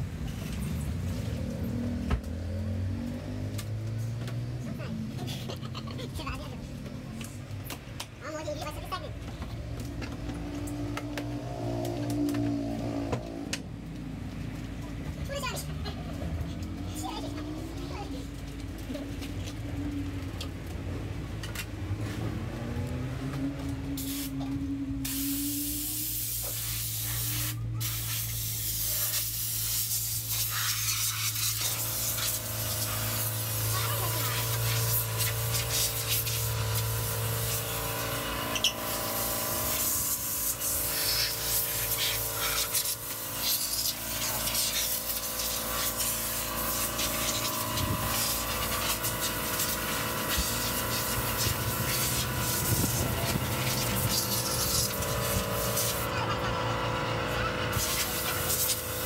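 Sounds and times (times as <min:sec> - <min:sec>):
water spraying onto car: 0:23.9 - 0:56.3, 0:57.6 - 0:59.0.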